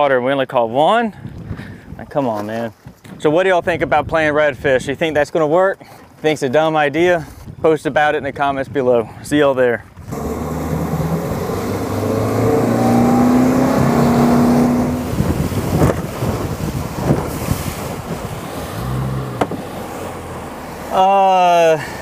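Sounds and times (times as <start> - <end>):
wind rushing over microphone: 3.1 - 5.2, 9.9 - 20.6
hull thumping on water: 10.0 - 20.9
outboard motor revving: 10.0 - 22.0.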